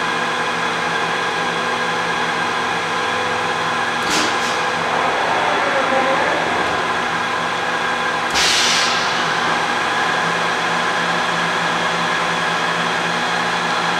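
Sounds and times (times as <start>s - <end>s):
industrial machinery humming: 2.4s - 12.0s.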